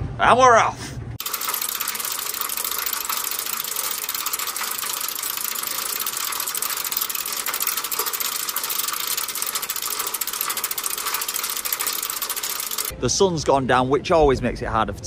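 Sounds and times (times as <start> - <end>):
ferris wheel gondola clicking and rattling: 1.2 - 12.9.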